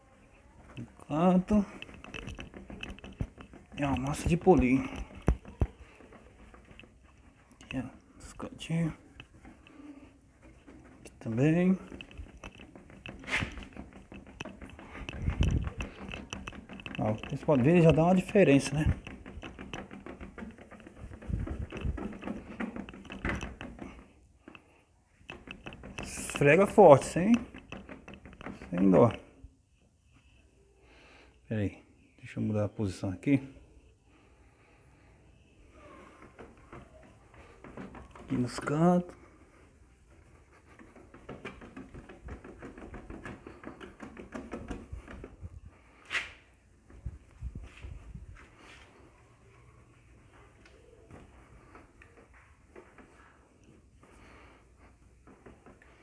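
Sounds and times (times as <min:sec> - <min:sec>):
dull thumps: 0:01.4 - 0:24.6
soft knocks: 0:01.5 - 0:24.6.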